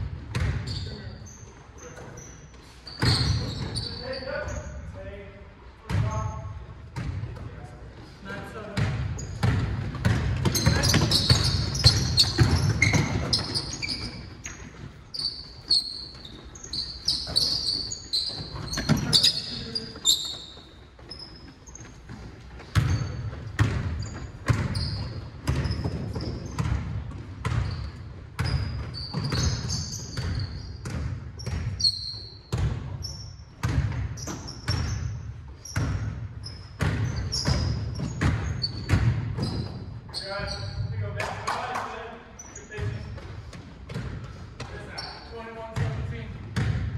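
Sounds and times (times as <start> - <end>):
sneakers squeaking on floor: 0.0 - 5.1, 5.8 - 46.9
basketball bouncing on wooden floor: 0.1 - 0.7, 8.8 - 19.4, 21.7 - 31.9, 32.5 - 32.9, 33.6 - 39.9, 45.8 - 46.9.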